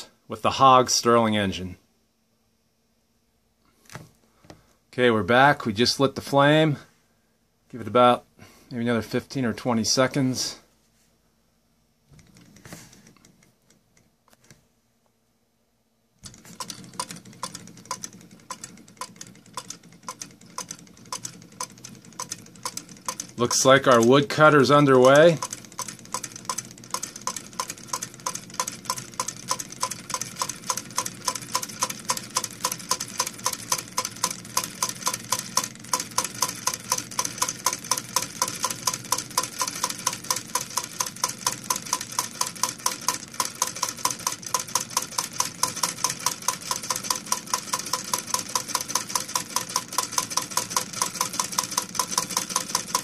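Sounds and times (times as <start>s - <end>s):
rapid mechanical clacking: 16.2s - 53.0s.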